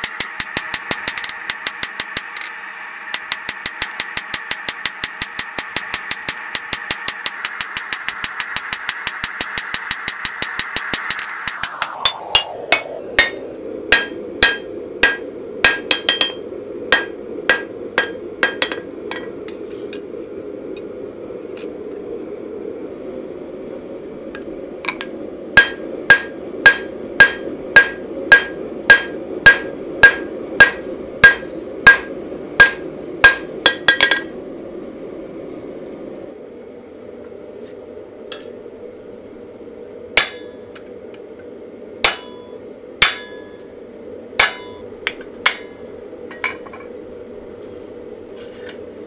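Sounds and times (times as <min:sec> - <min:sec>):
hammer striking blade on anvil: 0:03.2 - 0:19.3, 0:25.6 - 0:34.2, 0:40.2 - 0:40.5, 0:42.0 - 0:42.4, 0:43.0 - 0:43.5, 0:44.4 - 0:44.8.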